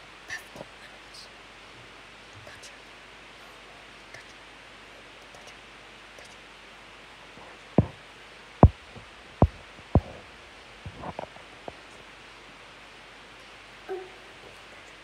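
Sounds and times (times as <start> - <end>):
faint steady hiss: 0.0 - 15.0
loud dull knocks: 8.6 - 10.3.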